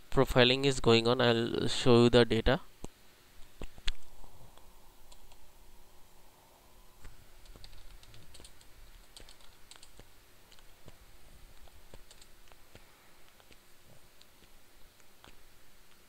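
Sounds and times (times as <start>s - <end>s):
keyboard key clicks: 7.4s - 10.7s, 11.6s - 13.6s.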